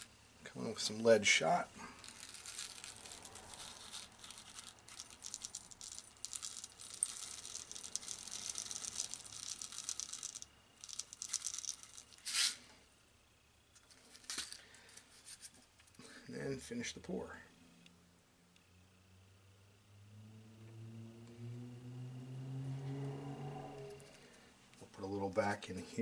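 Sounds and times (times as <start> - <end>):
metal pellets pouring and rattling: 1.4 - 12.7, 14.0 - 14.7.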